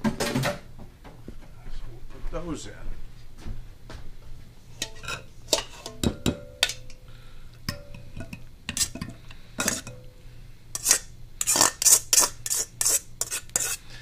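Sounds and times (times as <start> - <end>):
colander scraping bowl rim: 4.7 - 6.2, 7.8 - 10.1, 10.8 - 13.9
metal spoon knocking glass bowl: 5.8 - 6.9, 7.7 - 8.4.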